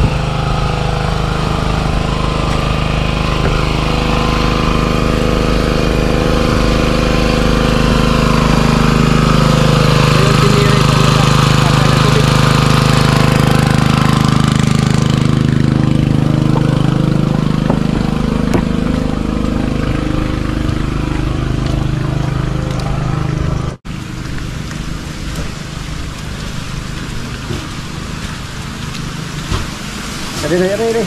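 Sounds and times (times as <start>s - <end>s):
petrol engine water pump running: 0.0s - 31.0s.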